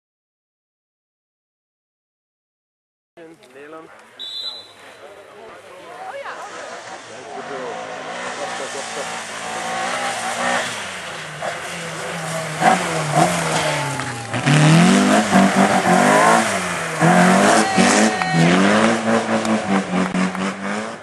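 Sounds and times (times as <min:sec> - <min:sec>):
car sliding on gravel: 0:04.6 - 0:21.0
rally car engine revving: 0:05.8 - 0:21.0.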